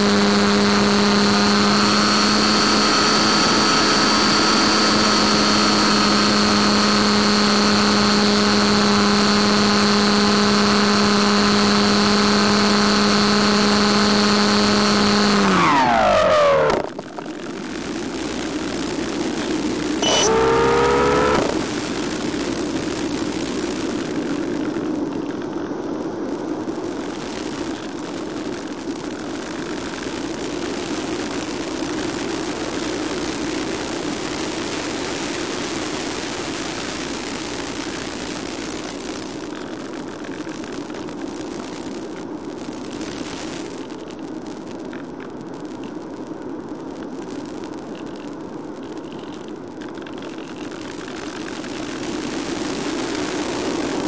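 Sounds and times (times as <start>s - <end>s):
electric motor and propeller whine: 0.0s - 17.0s, 17.8s - 23.9s.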